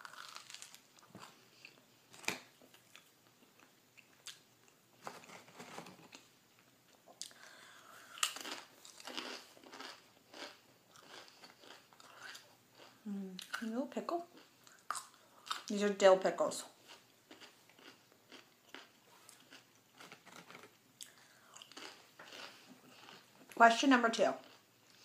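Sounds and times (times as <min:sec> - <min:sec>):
crunching tortilla chips: 0:00.0 - 0:03.0, 0:08.2 - 0:13.7, 0:16.9 - 0:23.6
chewing sandwich: 0:08.0 - 0:13.6, 0:16.9 - 0:23.6.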